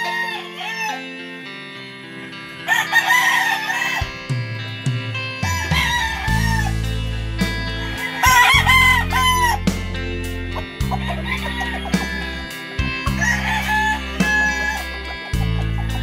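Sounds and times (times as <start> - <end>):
rooster crowing: 0.0 - 1.2, 2.6 - 4.2, 5.4 - 6.9, 7.8 - 9.6, 10.9 - 15.1
music with deep bass: 2.1 - 16.0.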